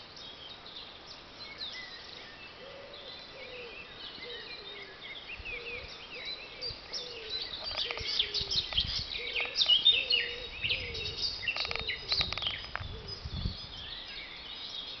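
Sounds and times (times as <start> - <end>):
songbirds chirping and trilling: 0.0 - 15.0
wind rumble on microphone: 5.4 - 14.3.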